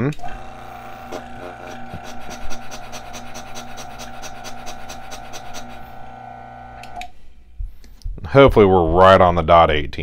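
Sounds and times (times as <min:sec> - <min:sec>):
coffee grinder motor whine: 0:00.2 - 0:07.1.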